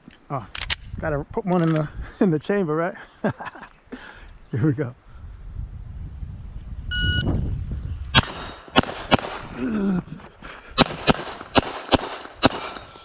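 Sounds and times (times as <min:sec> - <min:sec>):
pistol shots: 0:08.2 - 0:09.5, 0:10.8 - 0:13.0.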